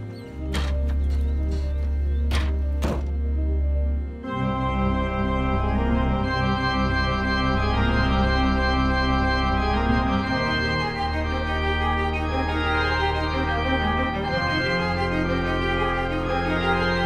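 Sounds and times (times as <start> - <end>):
organ-like chords: 0.0 - 17.0.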